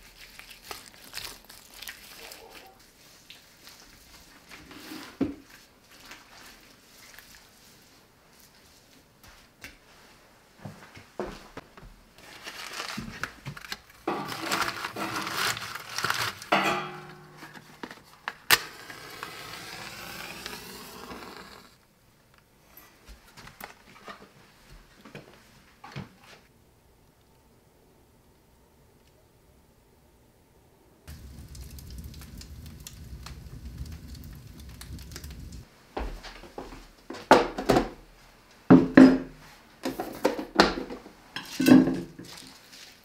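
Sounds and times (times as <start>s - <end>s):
paper crumpling and rustling: 0.0s - 4.6s, 12.2s - 16.6s, 17.4s - 21.7s, 42.2s - 43.0s
faint fire crackles: 0.0s - 23.8s, 31.0s - 37.2s
match striking and hissing: 17.4s - 21.8s.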